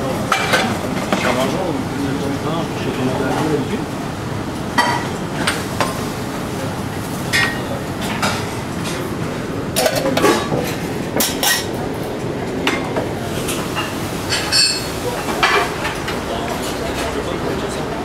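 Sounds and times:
steady background noise: 0:00.0 - 0:18.0
utensils clinking on plates: 0:00.2 - 0:01.6, 0:04.7 - 0:06.1, 0:07.3 - 0:09.1, 0:09.7 - 0:17.8.

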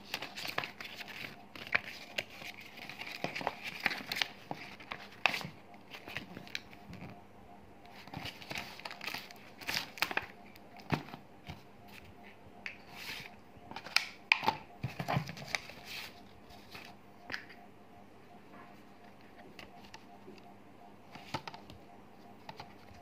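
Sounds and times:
paper and plastic rustling: 0:00.0 - 0:07.2, 0:07.9 - 0:12.1, 0:12.8 - 0:17.4, 0:21.1 - 0:21.8.

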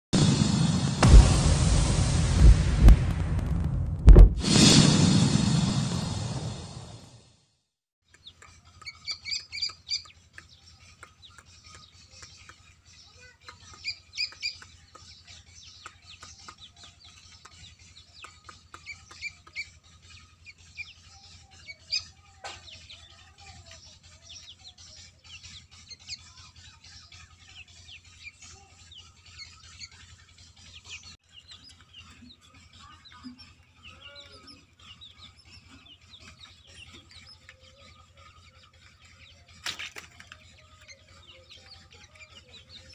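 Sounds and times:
steady low hum: 0:00.2 - 0:07.0
chicks peeping: 0:08.1 - 0:42.9.

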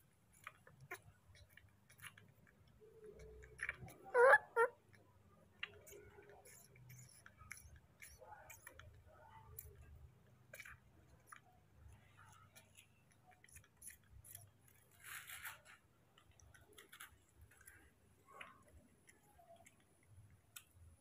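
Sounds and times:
soft rustle: 0:14.4 - 0:19.8.

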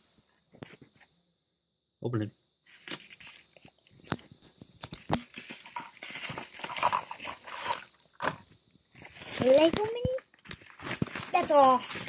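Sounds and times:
paper envelope crinkling and rustling: 0:02.7 - 0:12.0.

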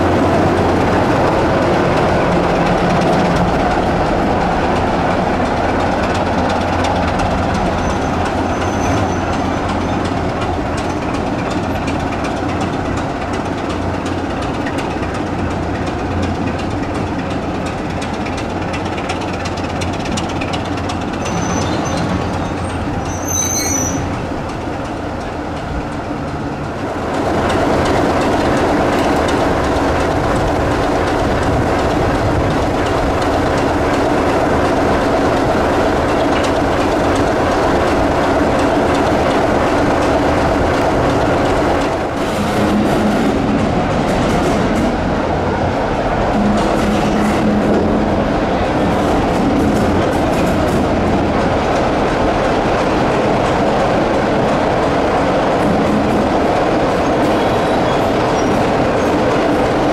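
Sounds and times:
diesel locomotive engine drone: 0:00.0 - 0:59.9
faint high squeaks: 0:21.2 - 0:24.1.

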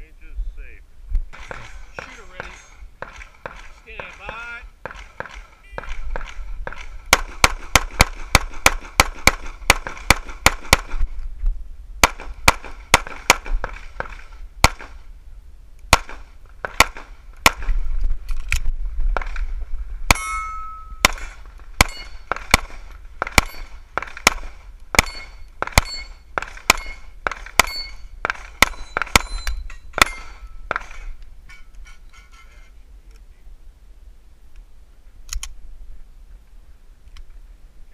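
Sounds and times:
pistol shots: 0:01.3 - 0:11.0, 0:12.0 - 0:15.0, 0:15.9 - 0:17.7, 0:20.1 - 0:31.1
metallic ring from steel targets: 0:20.1 - 0:22.3, 0:23.4 - 0:23.8, 0:25.0 - 0:32.5.

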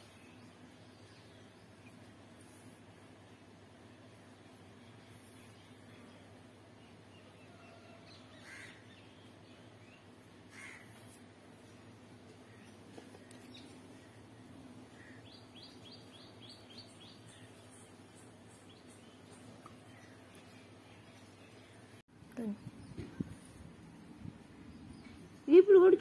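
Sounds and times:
crow cawing: 0:08.4 - 0:08.8, 0:10.5 - 0:10.9.

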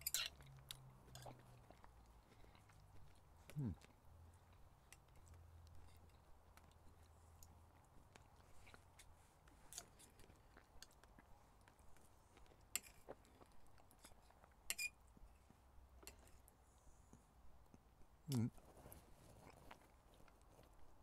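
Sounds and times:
knife and fork on plate: 0:00.0 - 0:00.4.

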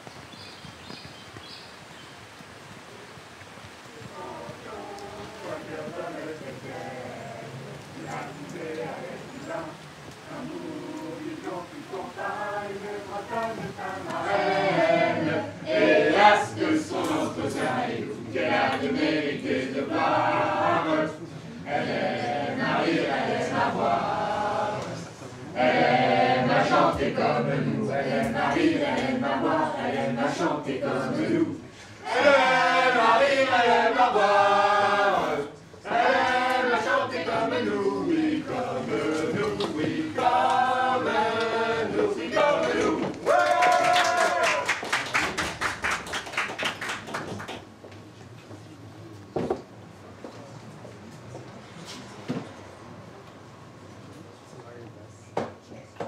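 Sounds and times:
choir singing: 0:04.1 - 0:43.3.

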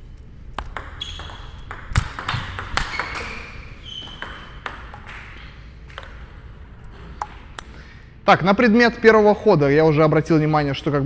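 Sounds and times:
table tennis ball hits: 0:00.6 - 0:06.3.

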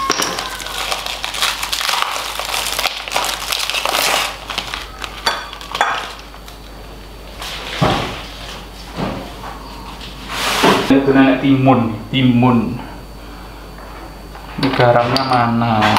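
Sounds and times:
plastic wrapper crinkling and tearing: 0:00.0 - 0:06.7.

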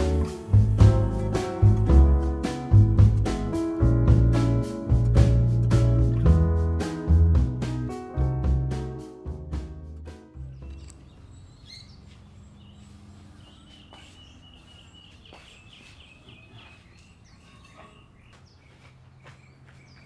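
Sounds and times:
small birds chirping: 0:10.5 - 0:20.0.

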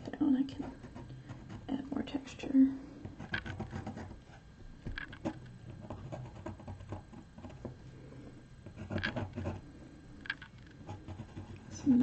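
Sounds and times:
pencil scratching on paper: 0:03.2 - 0:04.4, 0:05.2 - 0:07.7, 0:08.7 - 0:09.6, 0:10.8 - 0:11.8.

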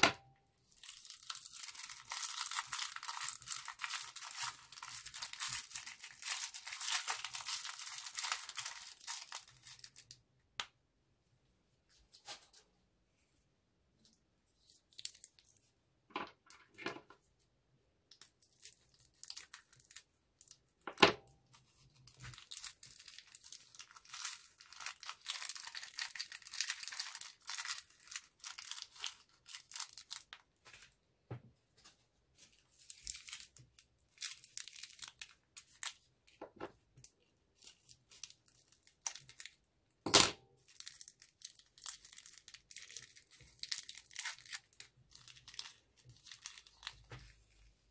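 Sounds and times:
plastic bags crinkling and tearing: 0:00.6 - 0:10.2, 0:18.2 - 0:20.6, 0:21.4 - 0:30.9, 0:32.6 - 0:36.4, 0:37.0 - 0:39.7, 0:40.6 - 0:47.5.

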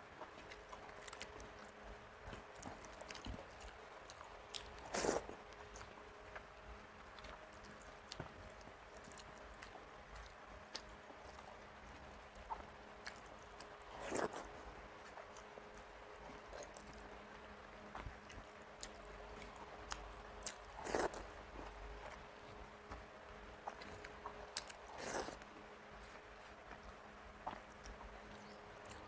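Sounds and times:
faint steady hum: 0:00.0 - 0:29.0
chewing smacks and clicks: 0:00.2 - 0:06.5, 0:17.9 - 0:23.0, 0:23.6 - 0:25.5, 0:26.1 - 0:29.0
wet squishing of food: 0:17.8 - 0:29.0.

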